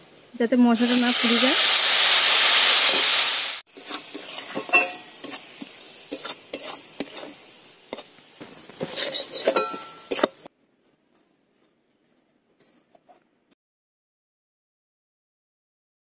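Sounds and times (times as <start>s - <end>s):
faint frying sizzle: 0.0s - 10.5s
water sizzling in hot oil: 0.0s - 10.5s
metal spatula scraping a pan: 2.8s - 10.5s.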